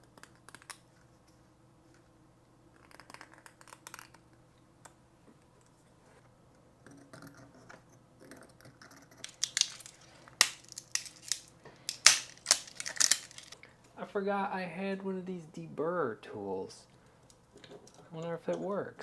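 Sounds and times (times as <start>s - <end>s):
plastic parts scraping: 9.1s - 13.6s.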